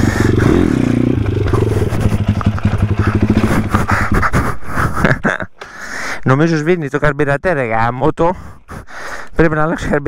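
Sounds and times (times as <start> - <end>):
motorbike engine revving and stalling: 0.0 - 4.5.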